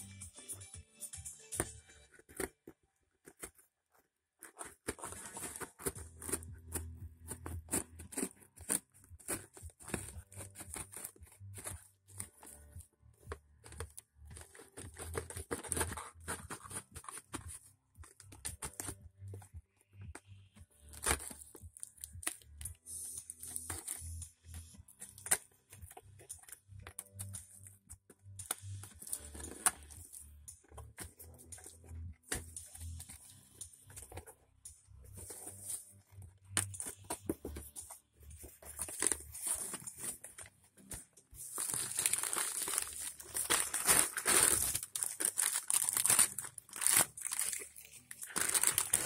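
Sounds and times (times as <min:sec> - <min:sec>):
music playing: 0:00.0 - 0:02.4, 0:05.0 - 0:49.0
packing tape ripping: 0:41.4 - 0:49.0.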